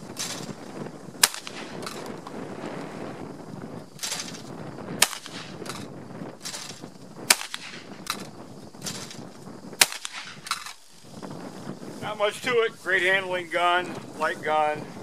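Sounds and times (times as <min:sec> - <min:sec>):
shotgun shots: 0:01.2 - 0:02.1, 0:05.0 - 0:05.9, 0:07.3 - 0:08.2, 0:09.8 - 0:10.8.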